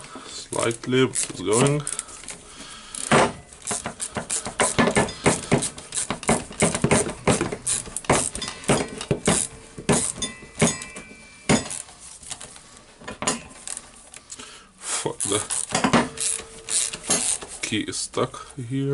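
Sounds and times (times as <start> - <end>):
ratchet wrench clicking: 0.6 - 10.9, 11.6 - 11.9, 15.2 - 17.5
short metallic ring: 10.1 - 11.9.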